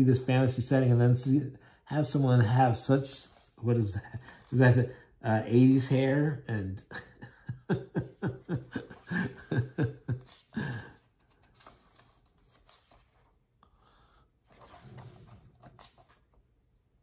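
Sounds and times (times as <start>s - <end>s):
man chuckling: 3.8s - 4.5s, 6.7s - 11.3s
book pages turning: 10.1s - 13.4s, 14.4s - 16.4s.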